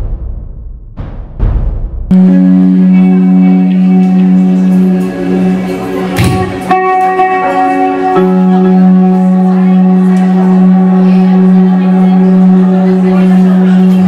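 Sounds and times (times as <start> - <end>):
thump: 0.0 - 2.1
electric guitars ringing notes: 2.1 - 14.0.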